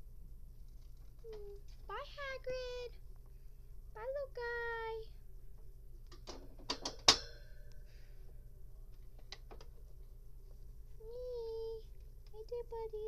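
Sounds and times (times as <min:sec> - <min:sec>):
plastic cage clicking and rattling: 0:06.1 - 0:07.3
sharp ringing clack: 0:07.0 - 0:07.8.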